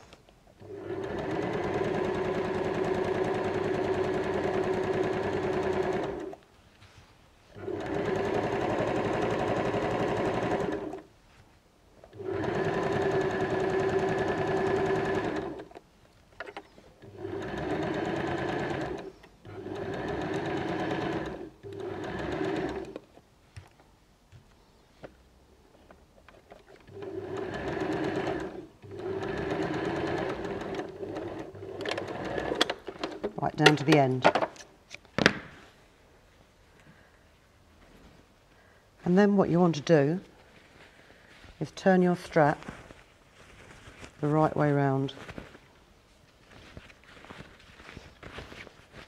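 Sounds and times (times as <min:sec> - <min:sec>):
sewing machine stitching: 0:00.6 - 0:06.4, 0:07.6 - 0:11.1, 0:12.1 - 0:15.7, 0:17.0 - 0:23.0, 0:26.7 - 0:34.2.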